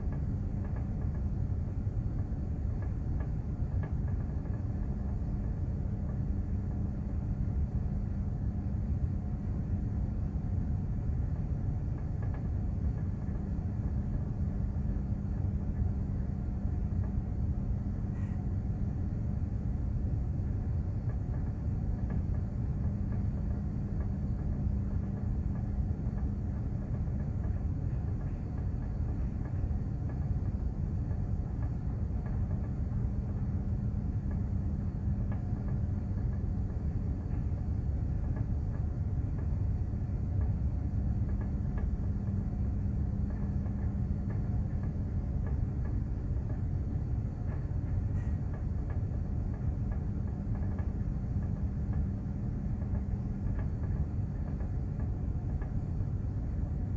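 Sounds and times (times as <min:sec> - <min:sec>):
ship engine low rumble: 0:00.0 - 0:56.9
steady hum: 0:00.0 - 0:56.9.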